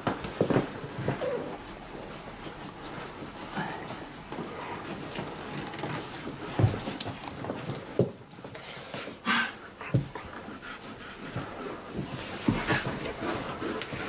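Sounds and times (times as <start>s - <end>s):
dog panting: 9.3s - 14.0s.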